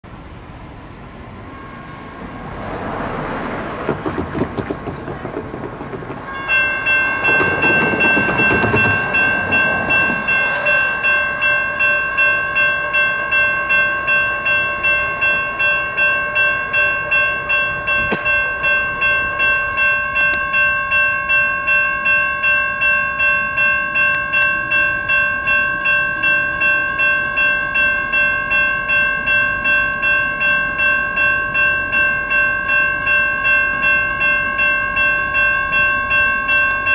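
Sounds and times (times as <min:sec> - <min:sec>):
railroad crossing bells ringing: 0:00.1 - 0:36.9
road vehicle passing: 0:00.7 - 0:13.7.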